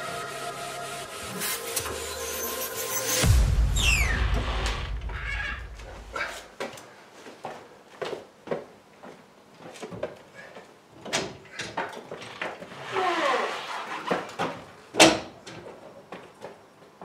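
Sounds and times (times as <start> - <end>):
trolley jack creaking squeal: 0.1 - 4.2, 12.7 - 14.4.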